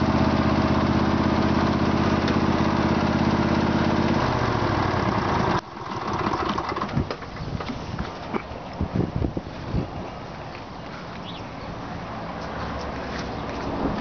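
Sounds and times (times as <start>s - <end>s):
lawn tractor engine running: 0.0s - 7.8s.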